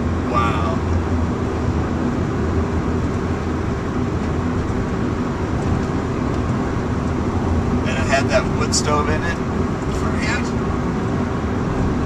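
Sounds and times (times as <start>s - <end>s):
car cabin road and engine rumble: 0.0s - 12.0s.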